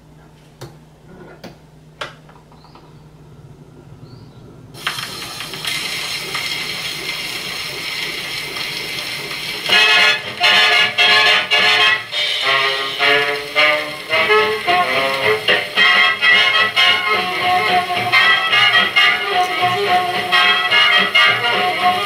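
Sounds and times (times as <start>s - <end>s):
record surface hiss: 0.0s - 22.0s
brass band playing on gramophone: 7.7s - 22.0s.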